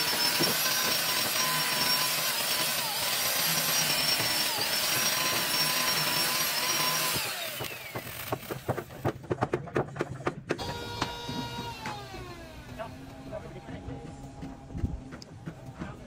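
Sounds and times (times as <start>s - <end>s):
electric chainsaw cutting wood: 0.0s - 9.1s, 10.6s - 13.6s.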